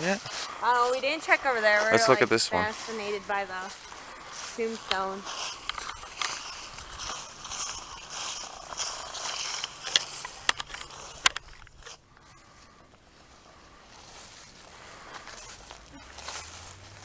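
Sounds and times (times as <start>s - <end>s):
footsteps rustling through dry leaves: 0.2s - 17.0s
sharp clicks: 9.3s - 11.8s.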